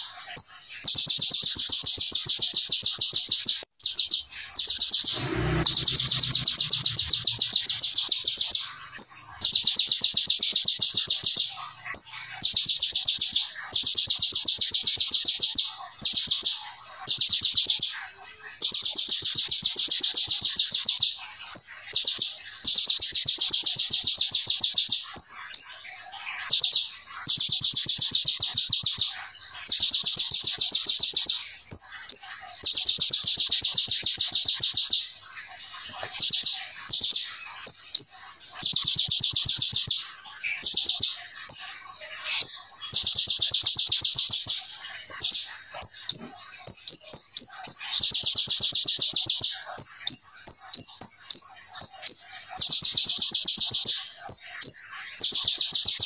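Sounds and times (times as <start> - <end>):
bird chirps: 0.0 - 56.0
bird buzzing trills: 4.6 - 12.3.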